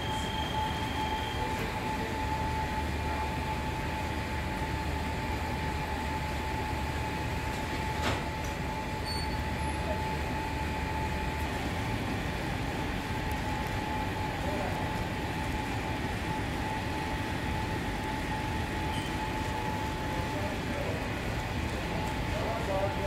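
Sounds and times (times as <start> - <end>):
bakery machinery humming: 0.0 - 23.0
high machine whine: 0.0 - 23.0.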